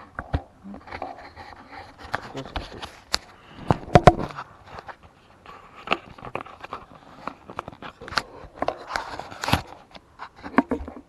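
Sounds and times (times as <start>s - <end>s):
faint rustle: 0.0s - 11.0s.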